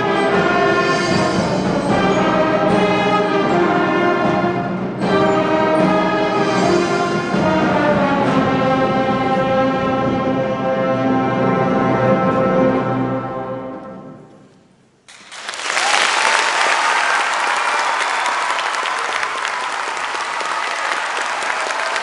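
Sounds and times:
audience applauding: 15.1s - 22.0s.

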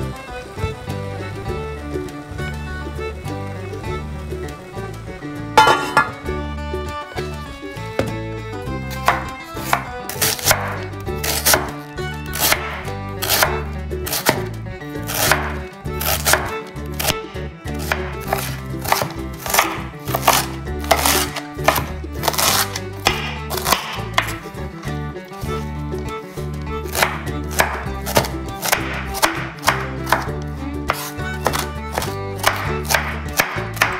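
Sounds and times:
knife slicing cabbage on wooden board: 8.9s - 24.4s, 26.9s - 33.9s.

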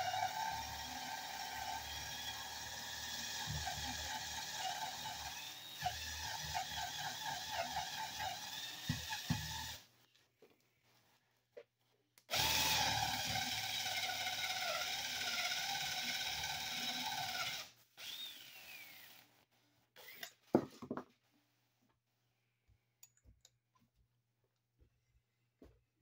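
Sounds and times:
cordless drill boring into wood: 0.0s - 9.8s, 12.3s - 19.3s, 20.0s - 20.3s.

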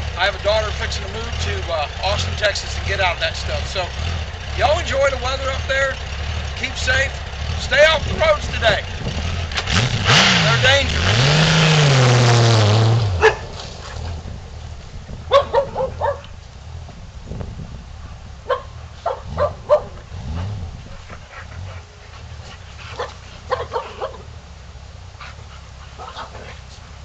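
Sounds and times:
motorcycle pulling away: 0.0s - 27.0s
dog barking: 13.2s - 13.6s, 15.3s - 16.3s, 18.4s - 20.0s, 22.9s - 24.3s, 26.0s - 26.6s.

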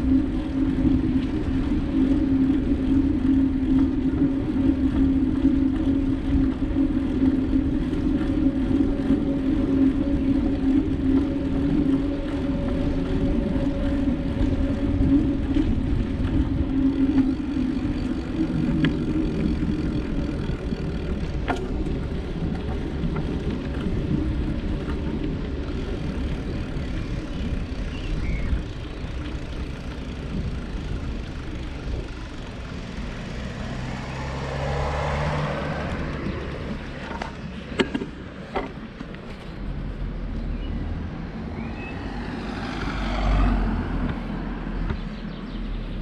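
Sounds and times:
bicycle road noise: 0.0s - 46.0s
passing motor traffic: 0.0s - 46.0s
wind rumble: 0.0s - 46.0s.

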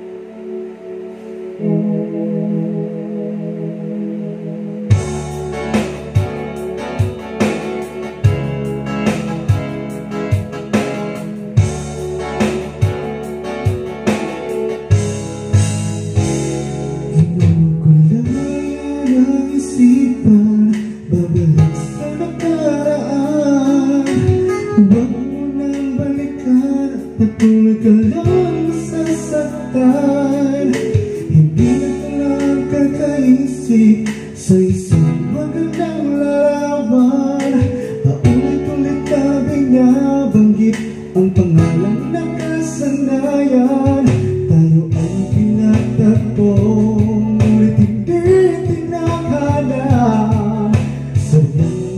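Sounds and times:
guitar and bass accompaniment: 0.0s - 51.9s
person singing: 16.9s - 51.9s.

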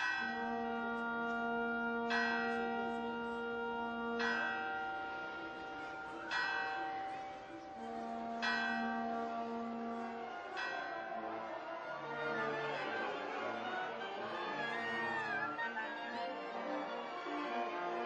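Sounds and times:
church bell ringing: 0.0s - 14.3s.

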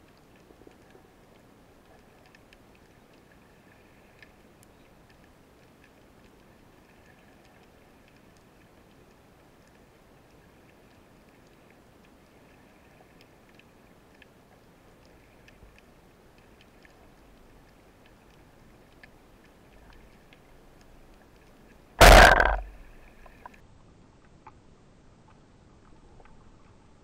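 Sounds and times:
faint ticks underwater: 0.0s - 26.9s
speargun shot crack: 22.0s - 22.8s.

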